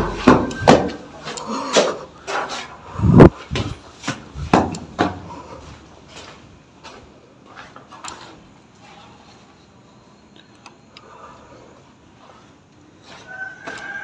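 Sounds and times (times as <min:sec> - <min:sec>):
heavy thuds and knocks: 0:00.0 - 0:01.1, 0:03.2 - 0:05.3.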